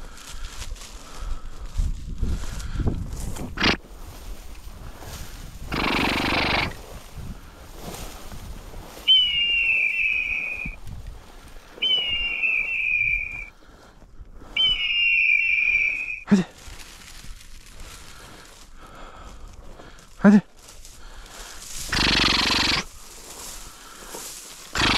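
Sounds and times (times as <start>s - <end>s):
long whistle blasts: 9.0s - 10.8s, 11.8s - 13.5s, 14.6s - 16.3s.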